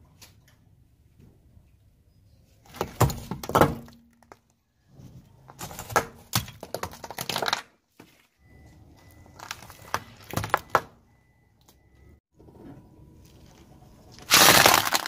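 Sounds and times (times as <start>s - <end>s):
car tyre crushing clay object: 2.6s - 8.1s, 9.0s - 11.1s, 13.2s - 15.0s.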